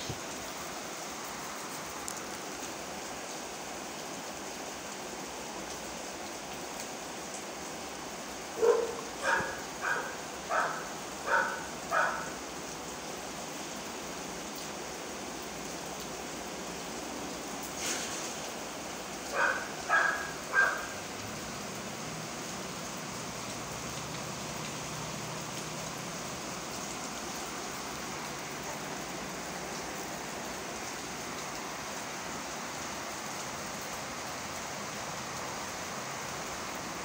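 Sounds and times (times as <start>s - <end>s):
steady rain falling: 0.0s - 37.0s
dog barking: 8.6s - 12.4s, 19.3s - 21.0s.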